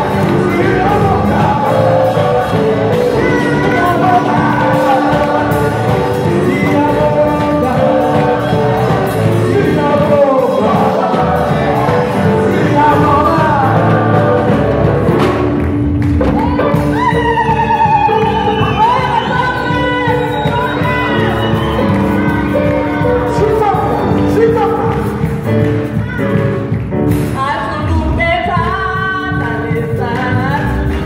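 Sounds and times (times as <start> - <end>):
solo voice singing: 0.0 - 15.6
group singing gospel: 0.0 - 26.0
band playing: 0.0 - 31.0.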